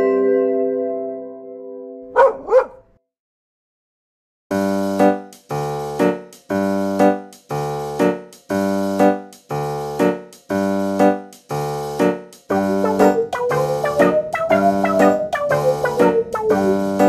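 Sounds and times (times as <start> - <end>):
electric piano chords: 4.5 - 17.0.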